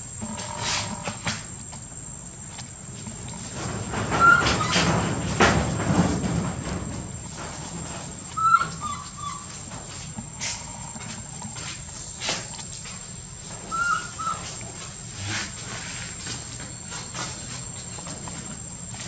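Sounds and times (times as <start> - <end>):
baby monkey squeaky coo calls: 4.2 - 4.7, 8.4 - 9.4, 13.7 - 14.4.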